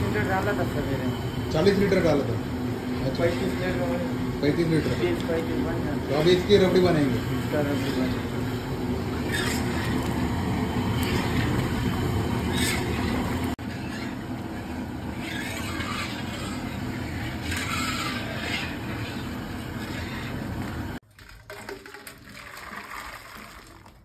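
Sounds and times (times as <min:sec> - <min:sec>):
gas burner roar: 0:00.0 - 0:21.0
metal ladle scraping pan: 0:09.1 - 0:20.8.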